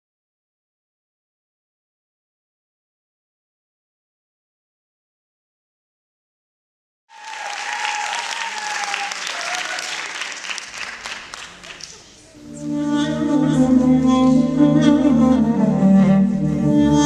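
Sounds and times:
audience applauding: 7.1 - 12.4
slow music with bowed strings: 12.4 - 17.0.

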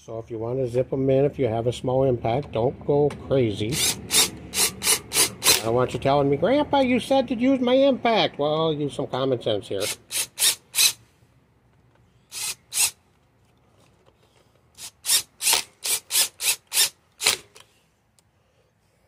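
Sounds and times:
impact driver bursts: 3.7 - 5.7, 9.8 - 11.0, 12.3 - 13.0, 14.8 - 17.7.

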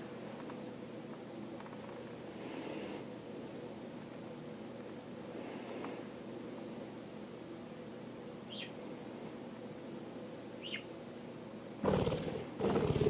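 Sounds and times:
budgerigar chirps: 8.5 - 8.8, 10.6 - 10.9
rapid wing fluttering: 11.8 - 13.0.

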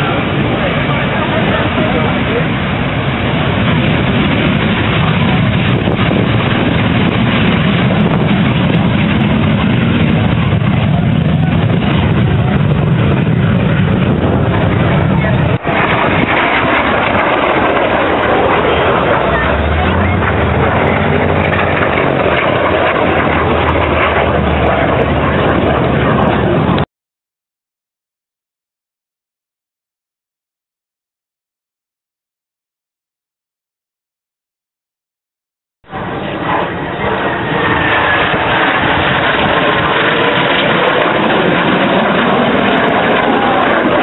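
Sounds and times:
aircraft engine droning: 0.0 - 26.9, 35.9 - 44.0
jet fighter flying past: 0.0 - 26.9, 35.9 - 44.0.

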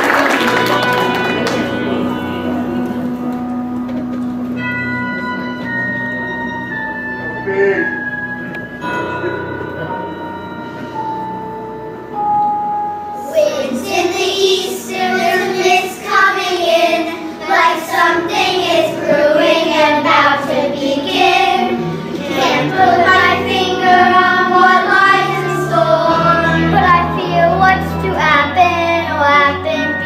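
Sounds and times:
instrumental accompaniment: 0.0 - 30.0
children's chorus singing: 13.2 - 30.0.

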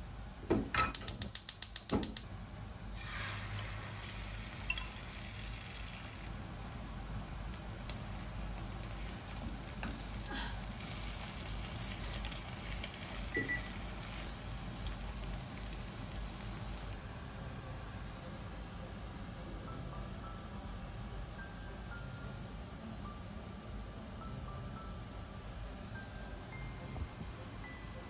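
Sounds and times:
egg sizzling in a pan: 2.9 - 17.0.

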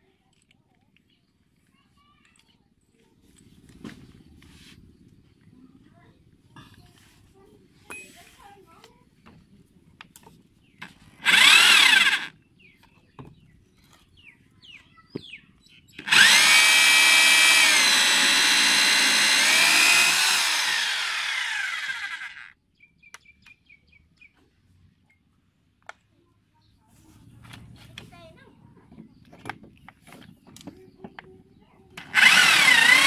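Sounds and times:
electric drill cutting plastic pipe: 11.2 - 12.3, 16.0 - 22.5, 32.0 - 33.0.

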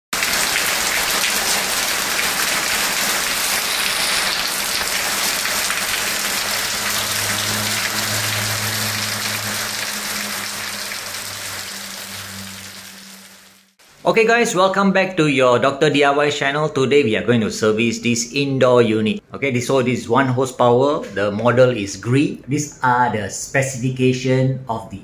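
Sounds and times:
low hum: 5.8 - 13.8.

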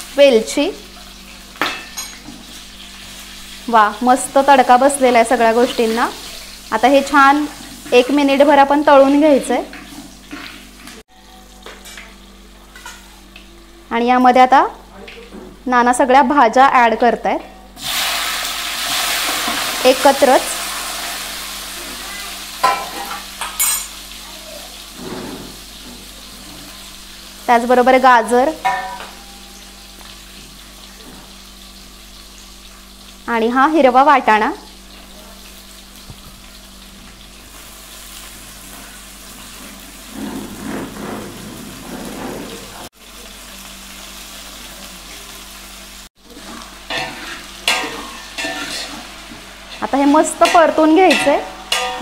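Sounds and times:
hot oil sizzling: 0.0 - 17.1, 17.7 - 52.0
spatula scraping pot: 25.0 - 25.8, 40.0 - 42.9, 46.4 - 49.0.

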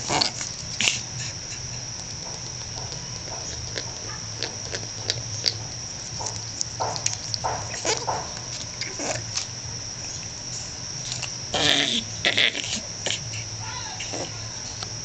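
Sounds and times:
animal clicks and scratches in cage: 0.0 - 10.3, 11.0 - 11.4.

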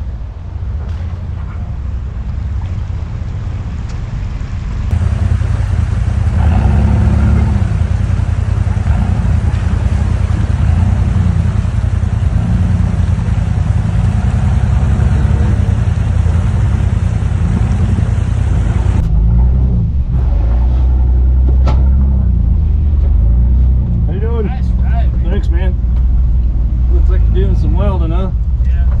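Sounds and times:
truck engine running: 0.0 - 29.0.

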